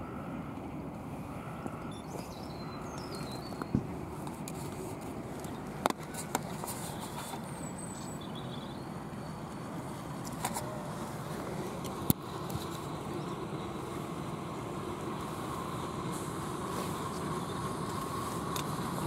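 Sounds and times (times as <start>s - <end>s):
outdoor background noise: 0.0s - 19.0s
faint bird chirps: 1.5s - 3.8s, 7.4s - 9.5s.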